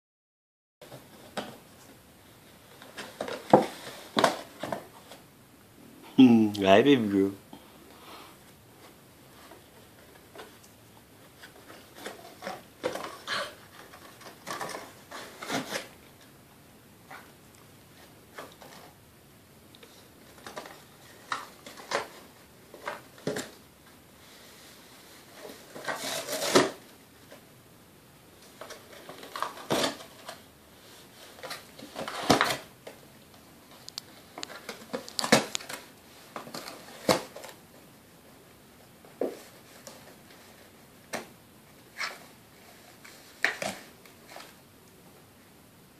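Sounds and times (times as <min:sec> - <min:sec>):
dog rummaging in cardboard box: 0:11.3 - 0:15.9, 0:25.2 - 0:26.9.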